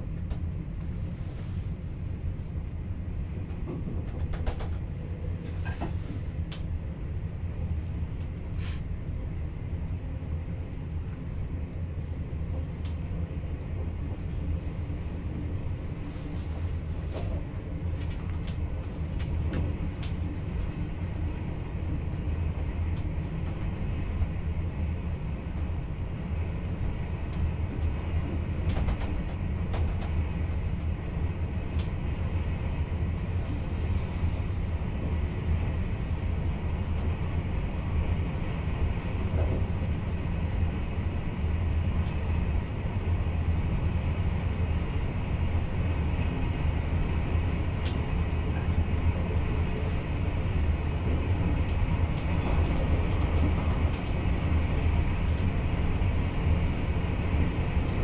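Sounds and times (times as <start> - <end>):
train low rumble: 0.0 - 58.0.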